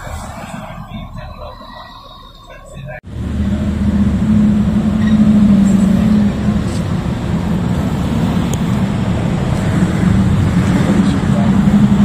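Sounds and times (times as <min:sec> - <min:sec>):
street traffic: 0:00.0 - 0:12.0
low engine hum: 0:02.9 - 0:12.0.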